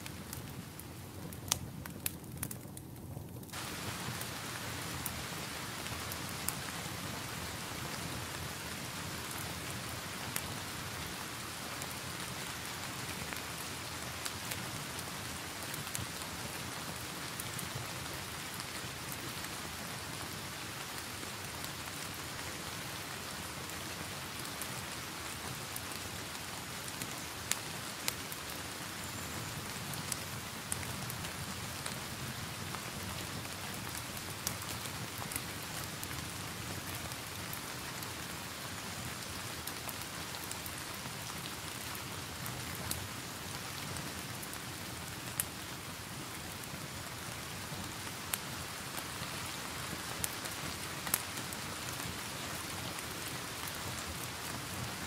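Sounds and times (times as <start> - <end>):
fireplace fire crackling: 0.0 - 55.0
steady rain: 0.0 - 55.0.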